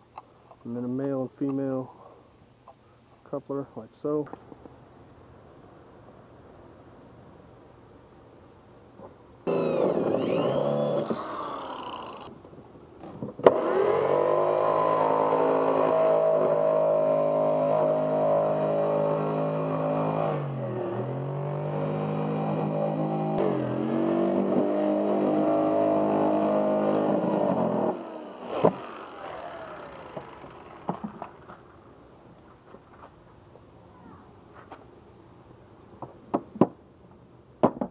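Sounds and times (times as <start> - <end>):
jigsaw cutting plastic: 9.5 - 12.3, 24.5 - 31.4.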